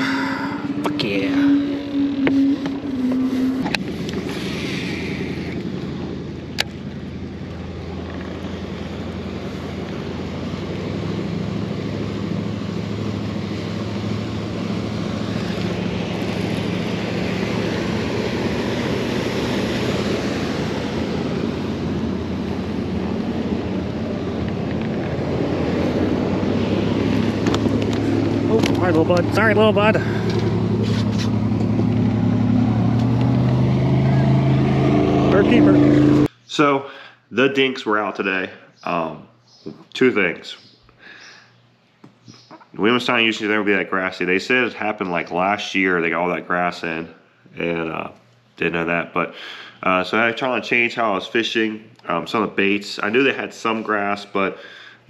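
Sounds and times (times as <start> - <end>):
motor drone: 0.0 - 36.3.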